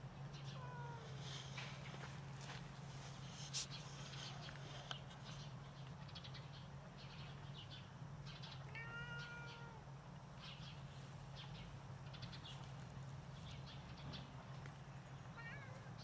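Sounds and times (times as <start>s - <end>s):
steady low hum: 0.0s - 16.0s
cat meowing: 8.7s - 9.8s, 15.4s - 16.0s.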